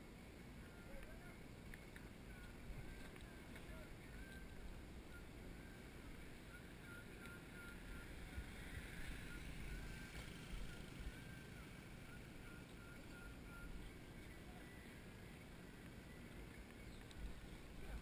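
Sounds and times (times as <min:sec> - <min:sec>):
camera movement noise: 0:00.9 - 0:04.6.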